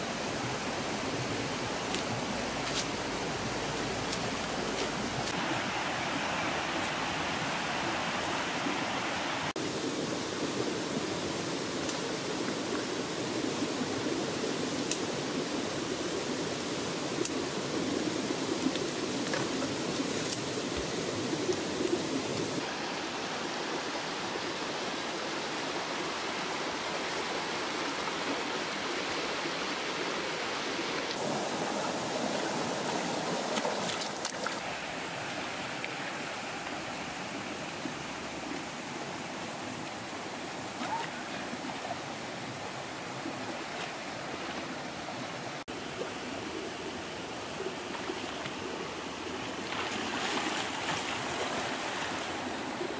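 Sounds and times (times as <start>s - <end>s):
stream rushing over stones: 0.0s - 52.9s.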